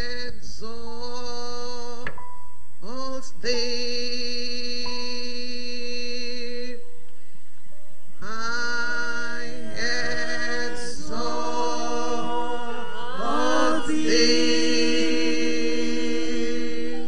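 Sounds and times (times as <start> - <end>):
women singing worship song: 9.2 - 17.0.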